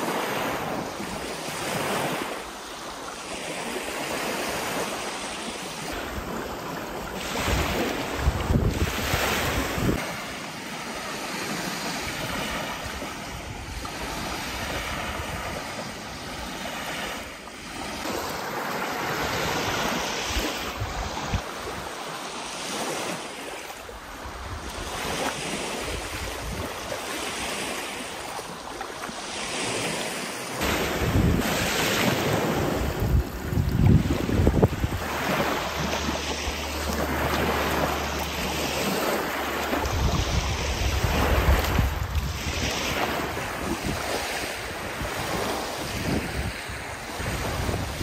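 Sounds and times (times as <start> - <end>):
lake waves washing onto beach: 0.0 - 48.0
wind buffeting microphone: 7.1 - 10.3, 19.2 - 21.9, 24.2 - 27.0, 30.6 - 48.0.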